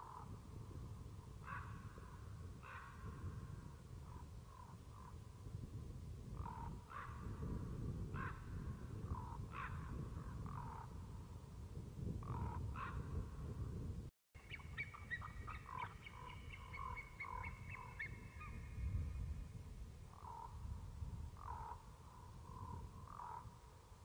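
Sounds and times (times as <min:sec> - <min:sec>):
ravens croaking: 0:21.4 - 0:23.6.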